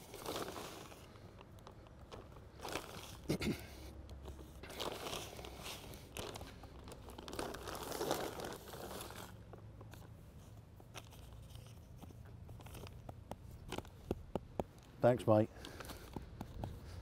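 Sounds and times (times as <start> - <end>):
plastic bag crinkling: 0.0 - 3.4, 4.4 - 9.5, 10.8 - 14.1.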